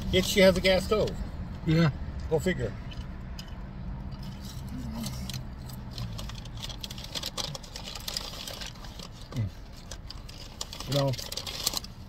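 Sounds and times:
paper bag crinkling: 4.6s - 12.0s.

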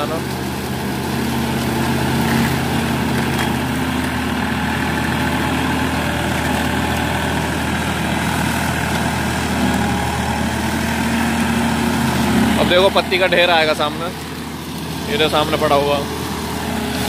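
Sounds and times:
flail mulcher chopping crop: 0.0s - 17.0s
tractor diesel engine under load: 0.0s - 17.0s.

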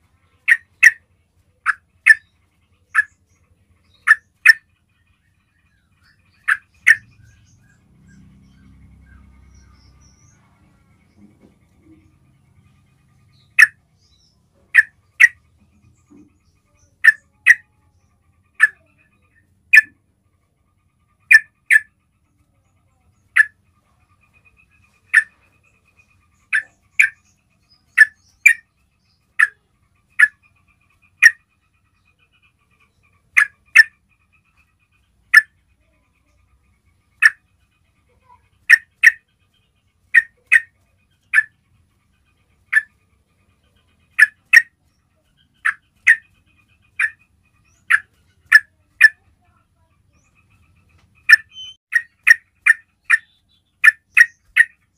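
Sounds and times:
bird call notes: 6.4s - 10.4s, 51.2s - 54.8s.

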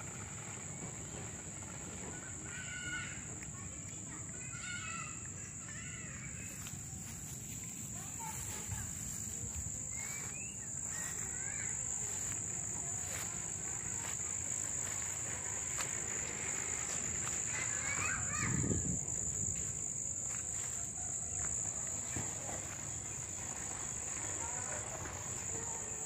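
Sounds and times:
insects trilling: 0.0s - 26.0s
faint rising chirps: 6.7s - 20.2s.

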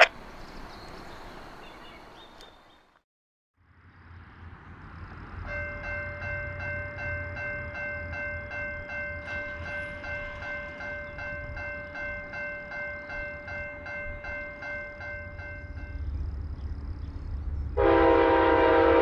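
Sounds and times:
railroad crossing bell ringing: 5.4s - 16.3s
low rumble: 15.5s - 17.8s.

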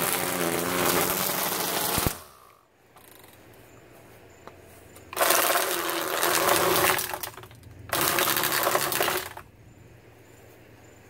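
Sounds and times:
string trimmer cutting grass: 0.0s - 2.6s, 5.1s - 9.4s.

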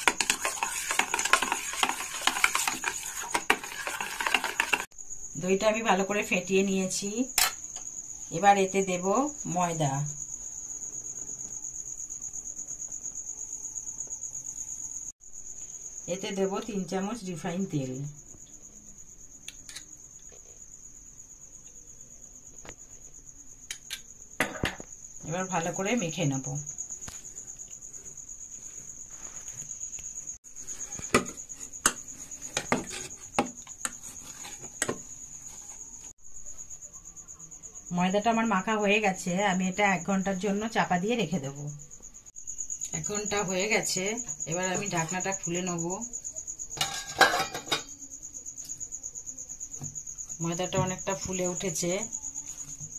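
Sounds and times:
dough slapping a steel bowl: 0.0s - 4.9s
cricket trilling: 0.0s - 52.9s.

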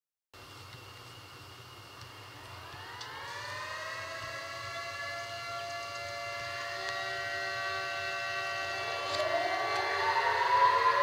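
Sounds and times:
siren winding up: 2.2s - 11.0s.

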